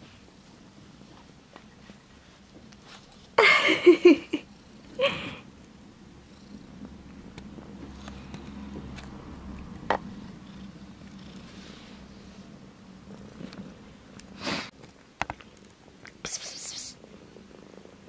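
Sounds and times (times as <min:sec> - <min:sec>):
cat purring: 0:04.0 - 0:14.7, 0:17.0 - 0:18.0.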